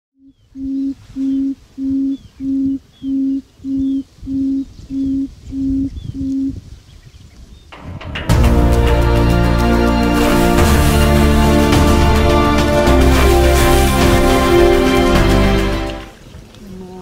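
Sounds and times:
bird low booming hoots: 0:00.2 - 0:06.6
small birds chirping: 0:00.2 - 0:07.8.

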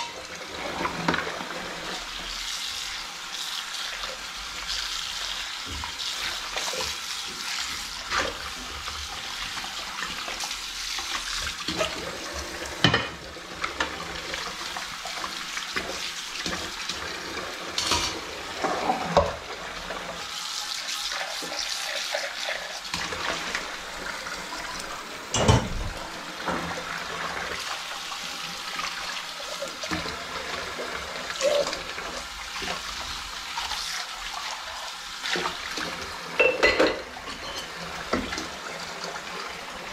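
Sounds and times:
tap running into sink: 0:24.7 - 0:26.7
dishes knocking against sink: 0:25.4 - 0:25.8.

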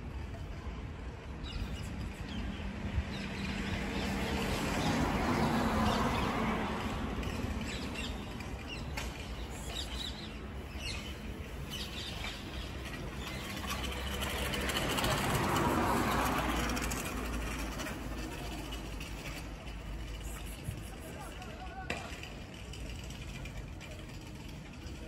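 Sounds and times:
outdoor background noise: 0:00.0 - 0:25.0
small birds chirping: 0:07.2 - 0:14.6.

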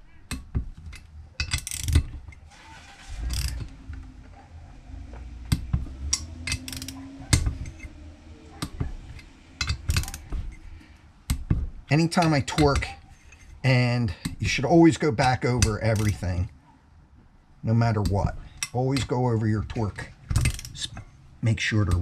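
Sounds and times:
torque wrench clicking: 0:00.3 - 0:02.4, 0:03.2 - 0:03.8, 0:05.5 - 0:08.0, 0:08.6 - 0:11.5, 0:20.3 - 0:21.0
metal clinks: 0:05.5 - 0:10.9.

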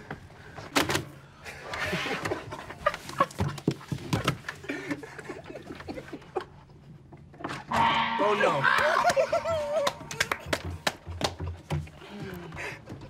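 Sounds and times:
men snickering: 0:08.6 - 0:10.2.

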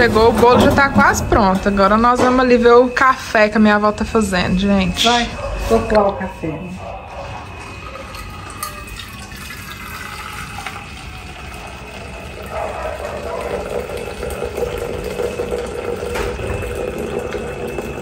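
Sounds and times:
coffee trickling: 0:07.4 - 0:18.0
hot water pouring: 0:07.7 - 0:18.0.

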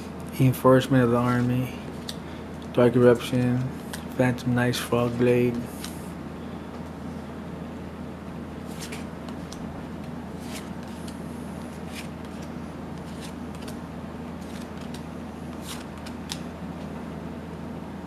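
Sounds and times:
cards flicking: 0:08.6 - 0:13.8, 0:14.4 - 0:16.5.

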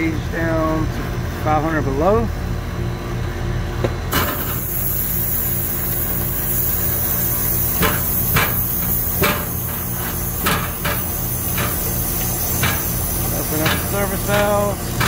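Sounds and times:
low machine hum: 0:00.0 - 0:15.0
ratcheting wrench clicks: 0:05.0 - 0:15.0.

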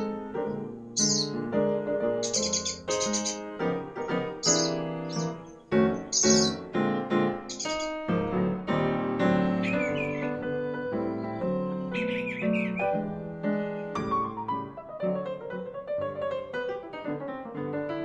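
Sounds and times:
gentle piano music: 0:00.0 - 0:18.0
high bird chirps: 0:01.0 - 0:01.5, 0:02.2 - 0:06.7, 0:07.4 - 0:08.0, 0:09.6 - 0:10.4, 0:11.2 - 0:13.0.

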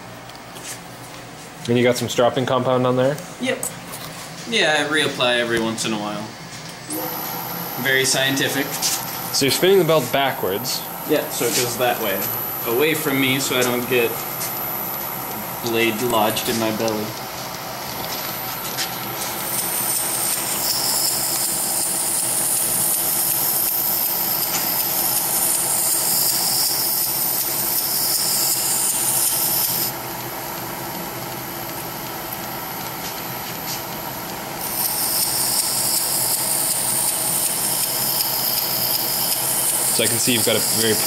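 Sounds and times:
belt grinder running: 0:06.9 - 0:10.6, 0:11.2 - 0:30.1, 0:34.6 - 0:41.0.

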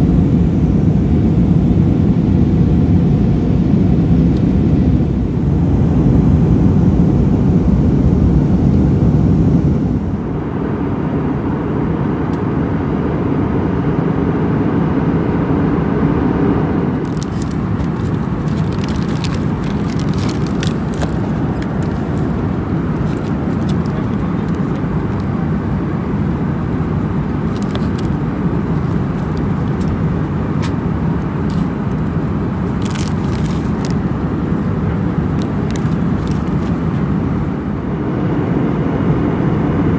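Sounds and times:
aircraft cabin engine noise: 0:00.0 - 0:39.9
plastic snack bags crinkling: 0:17.0 - 0:25.3, 0:27.3 - 0:37.0.

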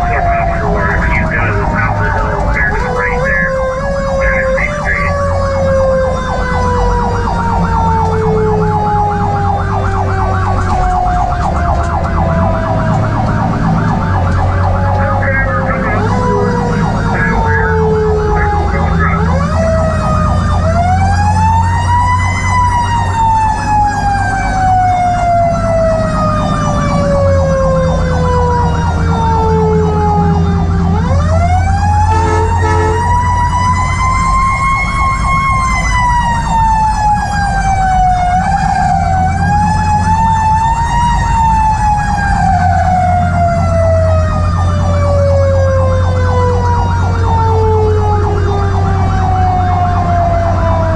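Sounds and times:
mechanical siren wailing: 0:00.0 - 0:50.9
truck engine droning: 0:00.0 - 0:50.9.

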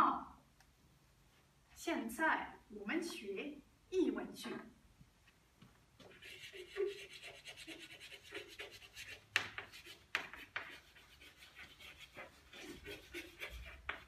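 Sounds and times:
chalk scratching on chalkboard: 0:06.0 - 0:14.0.

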